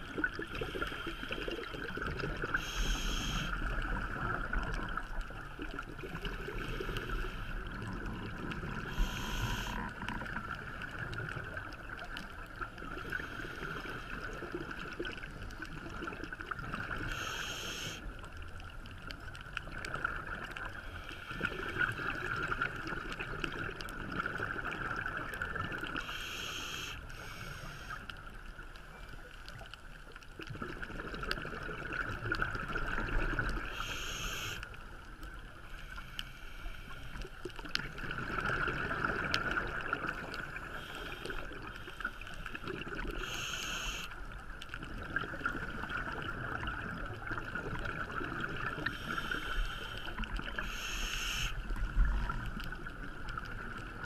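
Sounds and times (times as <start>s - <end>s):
regulator bubbles hissing: 0.0s - 12.1s, 12.7s - 18.2s, 30.6s - 34.6s, 35.8s - 44.2s, 44.8s - 54.0s
underwater hum: 0.0s - 54.0s.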